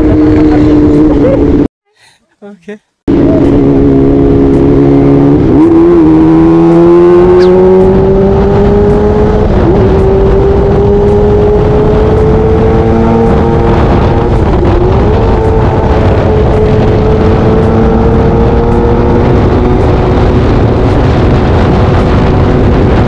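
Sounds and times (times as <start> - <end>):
motorcycle engine under throttle: 0.0 - 1.7, 3.1 - 23.0
wind rush: 3.1 - 23.0.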